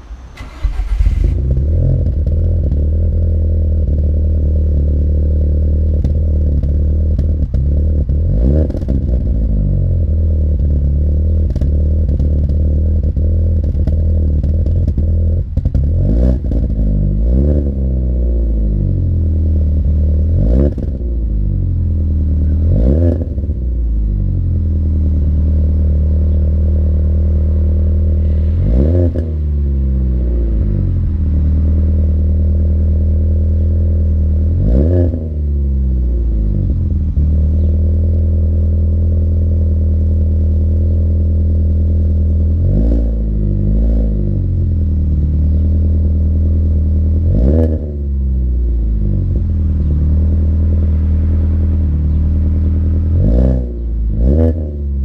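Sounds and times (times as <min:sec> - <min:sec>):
car engine idling: 0:00.0 - 0:17.4, 0:18.0 - 0:55.0
engine revving: 0:00.0 - 0:55.0.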